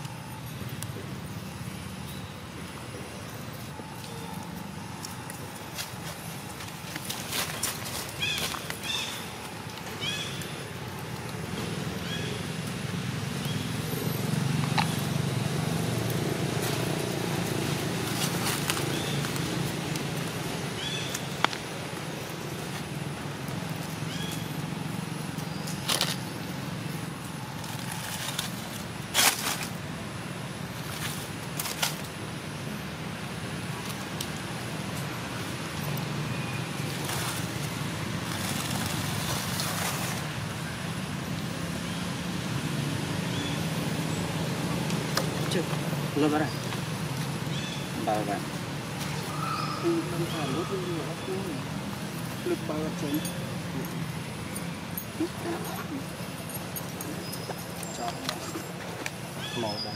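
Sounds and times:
traffic rumble: 0.0s - 59.9s.

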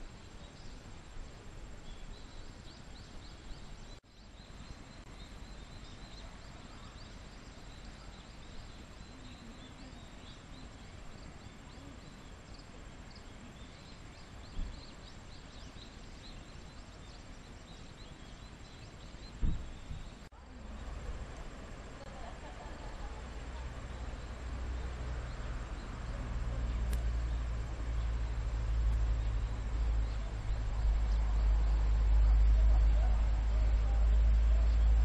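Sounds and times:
insects chirping: 0.0s - 35.0s
wind rumble on microphone: 9.9s - 22.0s, 23.3s - 35.0s
soft thump: 19.4s - 19.7s.

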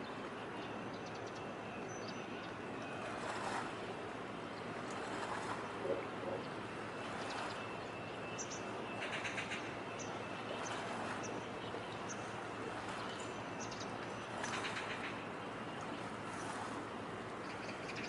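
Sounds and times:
harbour background noise: 0.0s - 18.0s.

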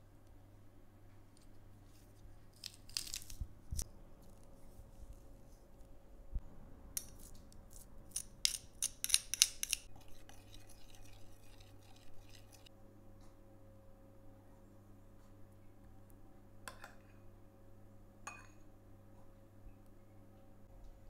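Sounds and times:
metal spoon scraping garlic press: 7.0s - 12.7s.

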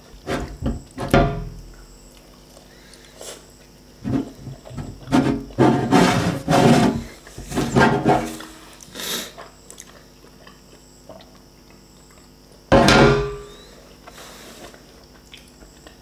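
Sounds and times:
chewing and wet mouth noises: 8.6s - 12.7s, 13.6s - 16.0s
loud knock: 12.7s - 13.5s.

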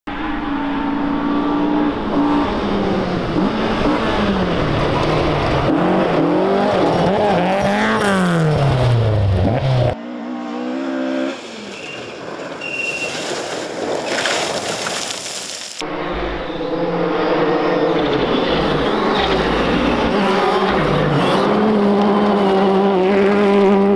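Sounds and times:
rally car engine revving: 0.1s - 11.9s, 15.8s - 23.9s
distant car approaching: 0.1s - 13.4s, 15.8s - 23.9s.

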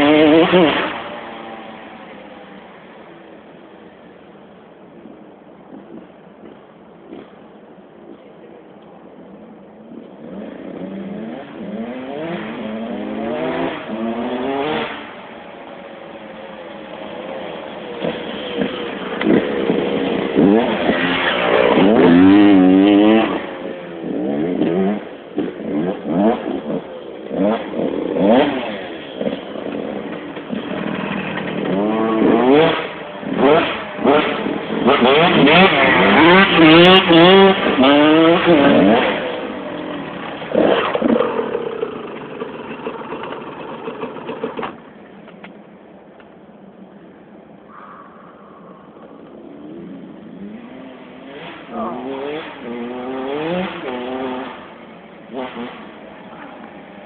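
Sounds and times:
motocross bike revving: 0.0s - 2.6s, 10.2s - 44.8s, 48.9s - 57.0s.

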